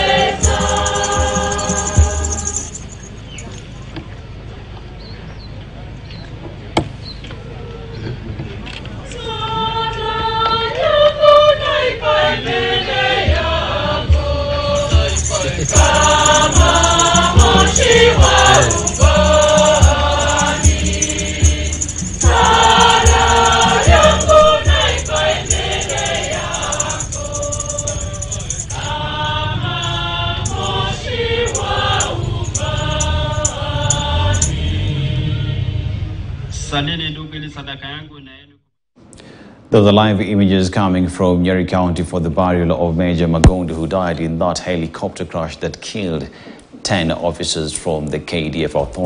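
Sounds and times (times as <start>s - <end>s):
choir singing a gospel hymn: 0.0s - 3.0s, 9.0s - 36.5s
steady drum beat: 0.0s - 3.2s, 13.2s - 34.6s
jingling hand percussion: 0.0s - 3.9s, 13.7s - 34.8s.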